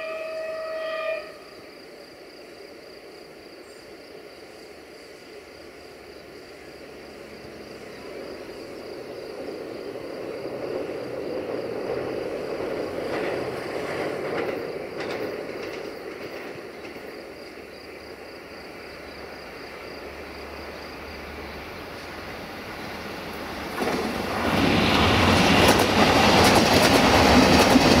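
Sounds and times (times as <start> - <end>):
diesel train engine and wheel rumble: 0.0 - 28.0
train wheel clicks: 9.3 - 17.2, 23.7 - 28.0.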